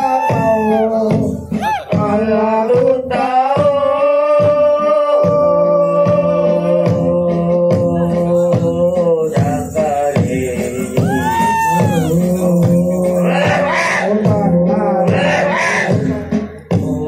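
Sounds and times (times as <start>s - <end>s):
folk music over loudspeaker: 0.0s - 17.0s
steady drum beat: 0.0s - 17.0s
sung held melody: 7.9s - 13.6s.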